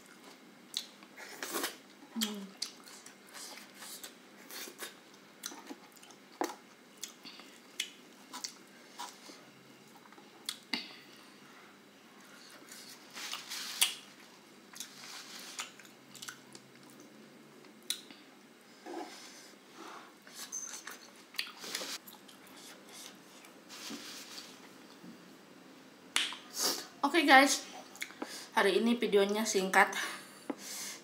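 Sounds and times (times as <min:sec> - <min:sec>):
person chewing close to microphone: 0:00.1 - 0:10.6, 0:14.7 - 0:17.1.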